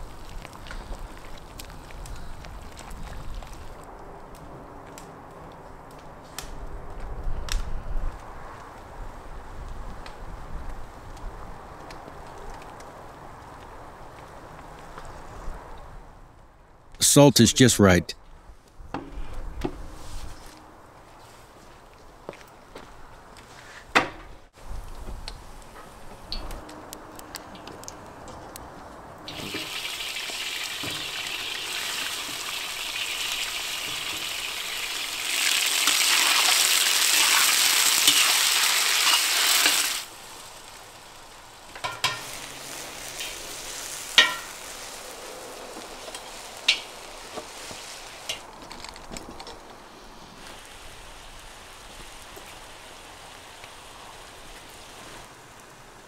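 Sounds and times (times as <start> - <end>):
meat sizzling in a pot: 29.3 - 48.4.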